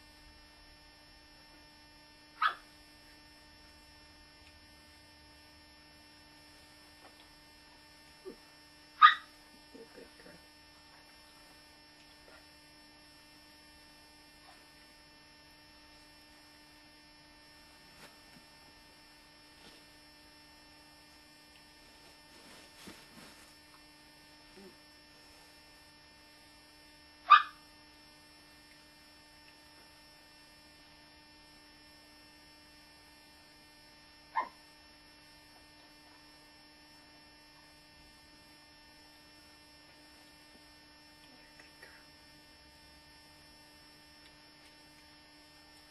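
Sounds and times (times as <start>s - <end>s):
steady electrical hum: 0.0s - 45.9s
dog yipping: 2.4s - 2.6s, 9.0s - 9.3s, 27.3s - 27.6s.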